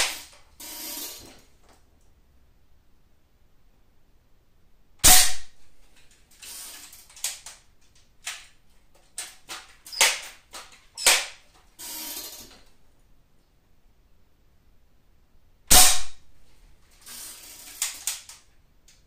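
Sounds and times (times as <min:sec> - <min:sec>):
air rifle firing: 0:05.0 - 0:05.6, 0:09.9 - 0:10.4, 0:15.7 - 0:16.2
rifle action clicks and clacks: 0:06.0 - 0:11.3.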